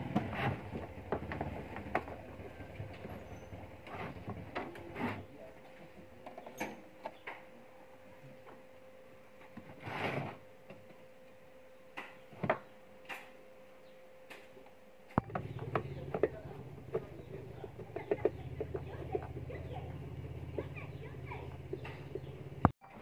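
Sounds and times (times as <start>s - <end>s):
steady low hum: 0.0s - 22.8s
rustling scrape: 9.7s - 10.4s.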